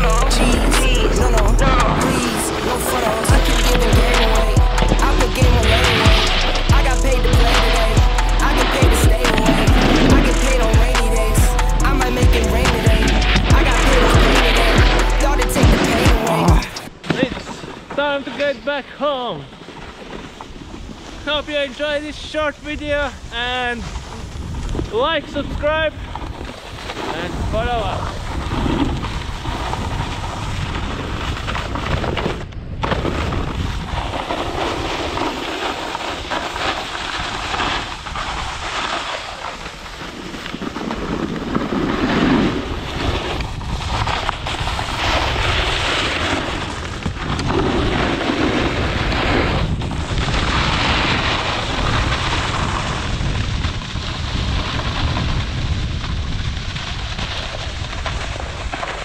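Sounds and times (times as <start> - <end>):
snowboard scraping over snow: 0.0 - 10.8, 11.9 - 59.0
wind rush on microphone: 20.5 - 39.0, 39.6 - 59.0.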